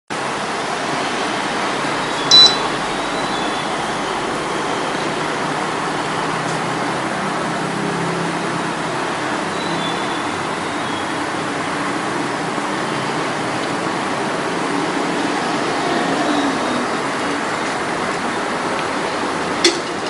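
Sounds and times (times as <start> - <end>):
steady background noise: 0.1 - 20.0
short electronic beep: 2.0 - 3.6.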